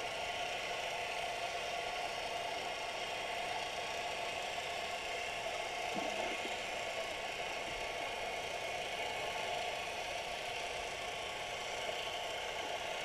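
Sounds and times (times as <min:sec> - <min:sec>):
underwater hum and hiss: 0:05.7 - 0:08.6.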